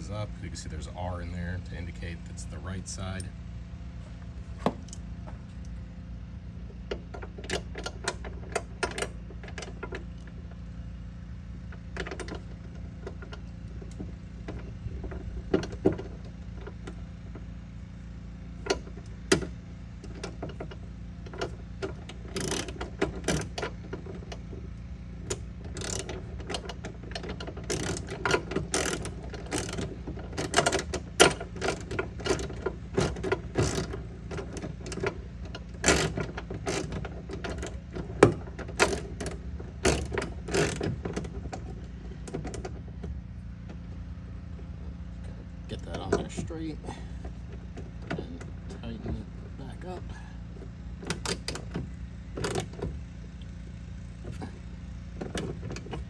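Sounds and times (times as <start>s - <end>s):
socket ratchet clicking: 21.4s - 23.7s, 25.3s - 35.2s.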